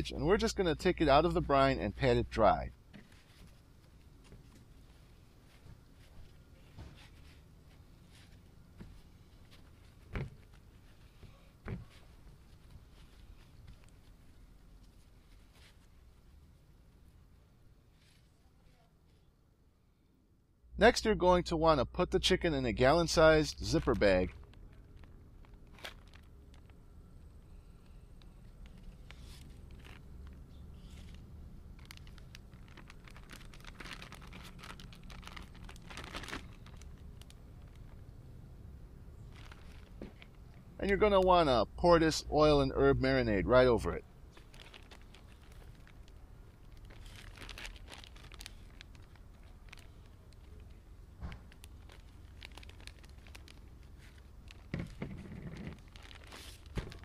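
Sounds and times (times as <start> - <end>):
plastic bag crinkling: 23.1 - 38.1, 39.1 - 41.3, 44.2 - 57.0.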